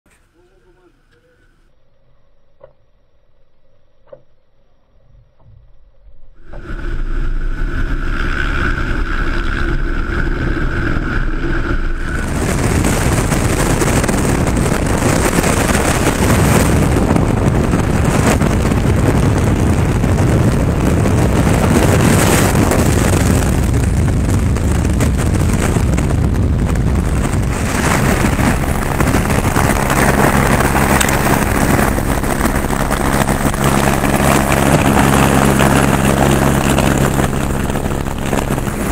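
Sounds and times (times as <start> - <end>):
high whine and hum: 0.1 - 38.9
wind rush on microphone: 6.3 - 38.9
helicopter engine and rotor drone: 6.4 - 23.8, 27.0 - 38.9.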